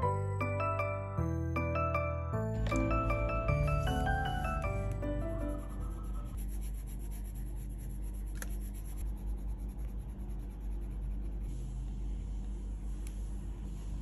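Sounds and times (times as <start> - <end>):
pencil scratching on paper: 5.5 - 11.7.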